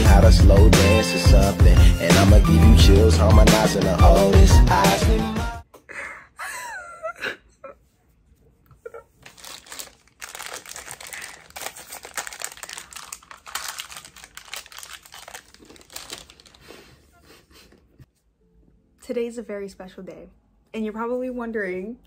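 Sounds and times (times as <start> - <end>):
rustling and crinkling handling: 8.5 - 17.1.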